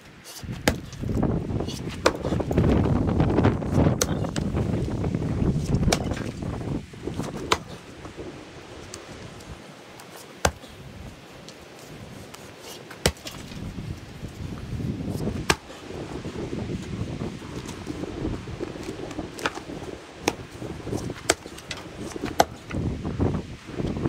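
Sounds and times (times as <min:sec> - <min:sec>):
axe chopping firewood: 0:00.3 - 0:02.7, 0:03.6 - 0:04.6, 0:05.6 - 0:06.3, 0:07.2 - 0:07.8, 0:10.0 - 0:10.8, 0:12.6 - 0:13.6, 0:15.1 - 0:15.8, 0:18.8 - 0:22.8.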